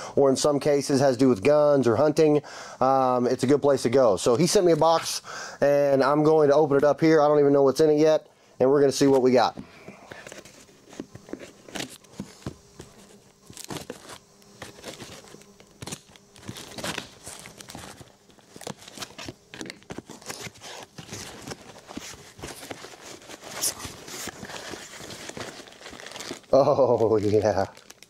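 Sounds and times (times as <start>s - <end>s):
packing paper crinkling: 10.2s - 28.0s
cardboard box tearing open: 13.5s - 26.5s
knife slitting packing tape: 13.5s - 26.5s.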